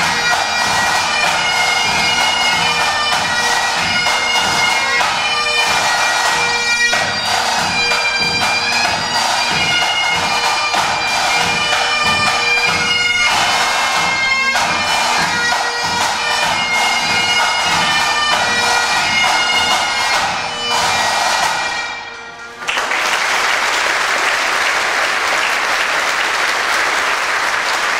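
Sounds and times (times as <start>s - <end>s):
pipe band drums: 0.0s - 23.0s
bagpipes: 0.0s - 23.1s
audience applauding: 22.5s - 27.9s.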